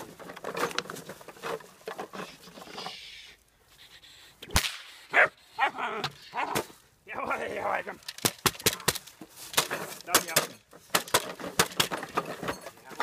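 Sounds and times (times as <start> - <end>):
sharp crack: 4.4 - 5.1
puppy barking: 5.1 - 6.5.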